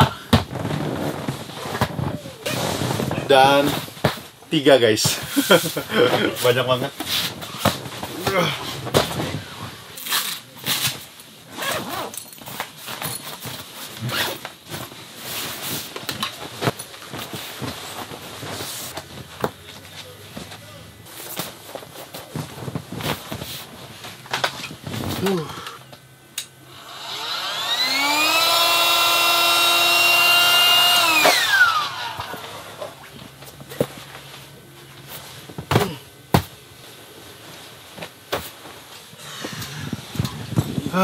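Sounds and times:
bags rustling: 0.3 - 25.5
zippers pulled open: 11.5 - 14.4
electric motor whining: 26.7 - 33.0.

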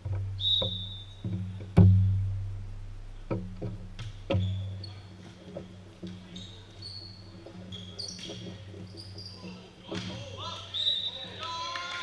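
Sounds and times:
volleyball thumps with ringing boom: 0.0 - 4.8
sneakers squeaking on court: 4.3 - 10.1.

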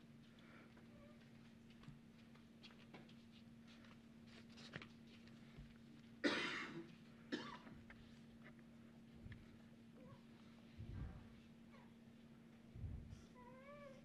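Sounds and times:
faint steady hum: 0.0 - 14.0
person coughing: 6.2 - 7.7.

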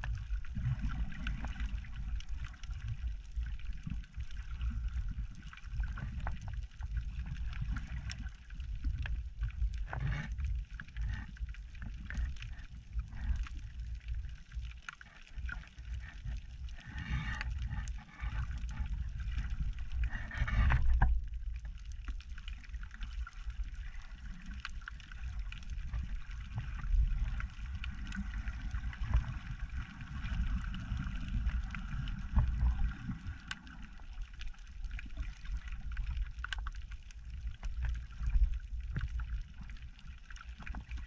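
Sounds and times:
water sloshing underwater rumble: 0.0 - 41.0
faint clicks: 21.8 - 39.7.

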